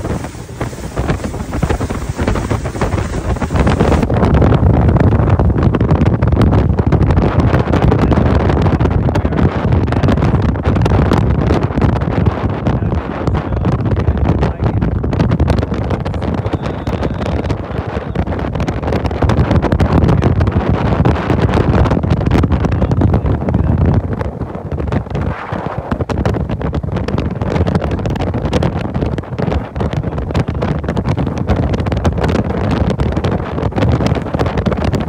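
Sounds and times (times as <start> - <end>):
steady low rumble: 0.0 - 35.0
wind buffeting microphone: 0.0 - 35.0.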